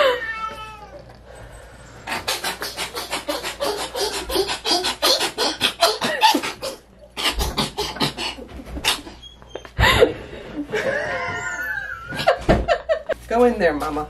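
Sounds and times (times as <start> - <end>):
person making breathy vocal sounds: 2.2 - 6.8.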